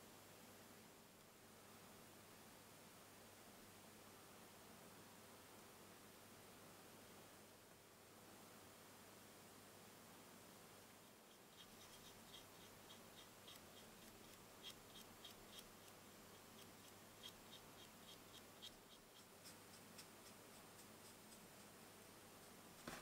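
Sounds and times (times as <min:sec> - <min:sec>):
paintbrush ticking on plastic: 0:11.2 - 0:21.8.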